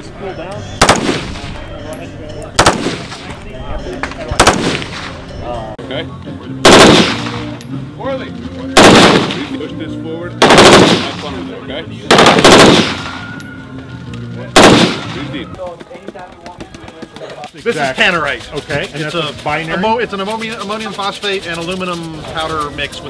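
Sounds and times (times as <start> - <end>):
automatic gunfire bursts: 6.6 - 7.4, 8.8 - 9.4, 10.4 - 11.2, 12.1 - 13.0, 14.6 - 15.2.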